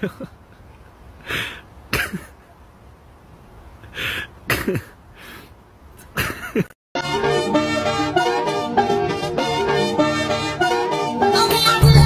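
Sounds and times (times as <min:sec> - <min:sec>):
loud music with steady beat: 0:07.0 - 0:12.0.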